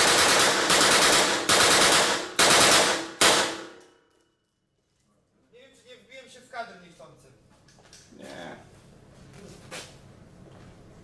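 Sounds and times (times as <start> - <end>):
submachine gun bursts: 0.0 - 3.6.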